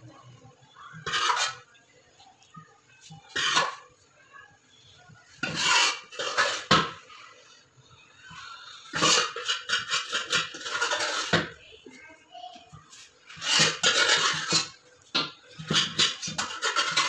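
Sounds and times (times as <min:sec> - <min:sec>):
metal spoon scraping a metal pot: 0:00.7 - 0:01.8, 0:03.2 - 0:04.0, 0:05.3 - 0:07.6, 0:08.3 - 0:11.6, 0:12.9 - 0:17.0.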